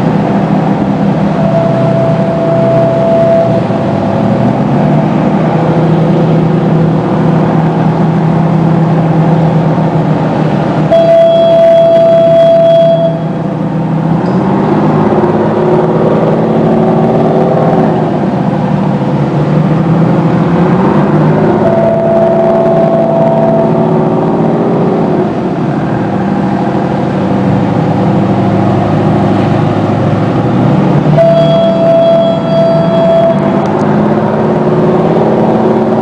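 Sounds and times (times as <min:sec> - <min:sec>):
boat diesel engines revving: 0:00.0 - 0:36.0
high horn-like tone: 0:01.3 - 0:04.0, 0:10.9 - 0:13.4, 0:21.6 - 0:23.8, 0:31.2 - 0:33.7.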